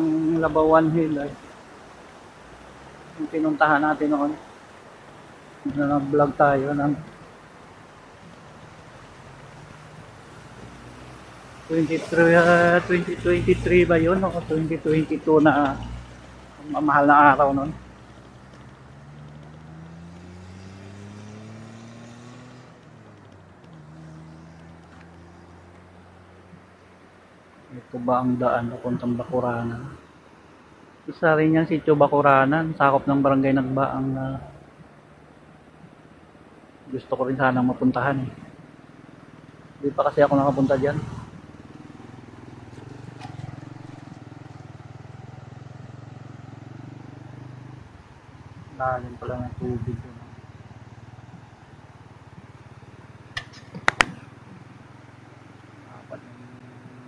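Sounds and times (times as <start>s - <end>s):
motorcycle engine revving: 8.2s - 26.6s, 40.1s - 57.0s
motorcycle engine running: 41.3s - 55.6s.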